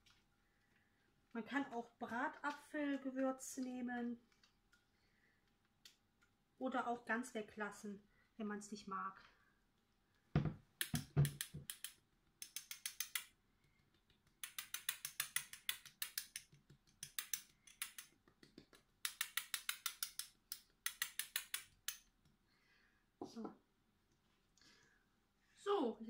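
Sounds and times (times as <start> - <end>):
spice jar shaking clicks: 14.0 - 22.0.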